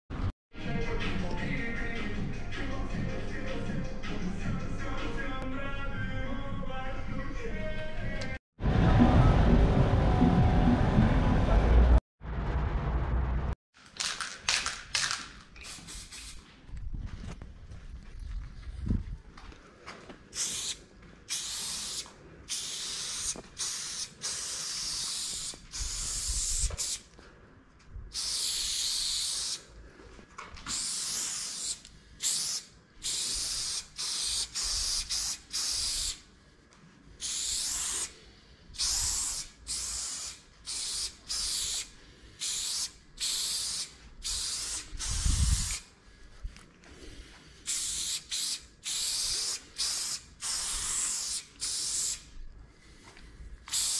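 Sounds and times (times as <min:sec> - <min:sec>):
spray paint can hissing: 0:14.0 - 0:16.4, 0:20.4 - 0:27.1, 0:28.1 - 0:29.7, 0:30.7 - 0:36.2, 0:37.2 - 0:38.2, 0:38.8 - 0:45.9, 0:47.7 - 0:52.3, 0:53.7 - 0:53.9
dull low thumps: 0:16.7 - 0:19.3.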